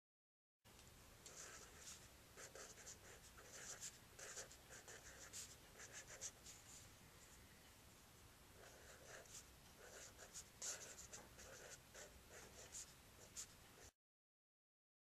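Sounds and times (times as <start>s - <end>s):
pen scratching on paper: 1.3s - 6.6s, 8.6s - 13.9s.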